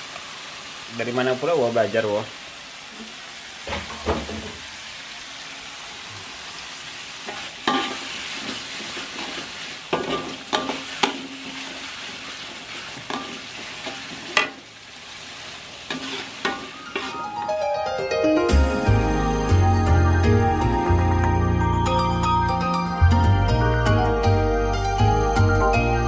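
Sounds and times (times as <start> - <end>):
sauce sizzling in oil: 0.0 - 17.6
spatula scraping a wok: 7.2 - 17.4.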